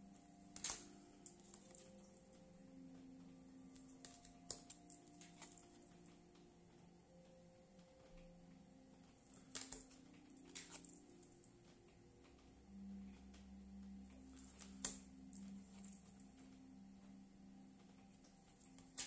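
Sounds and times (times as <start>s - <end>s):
faint steady hum: 0.0s - 19.0s
cards tapping and clicking: 0.5s - 2.0s, 3.7s - 6.1s, 9.3s - 11.0s.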